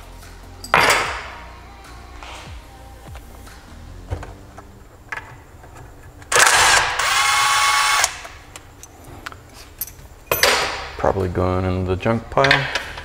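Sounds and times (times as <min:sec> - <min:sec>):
power driver motor whining: 0:06.4 - 0:08.3.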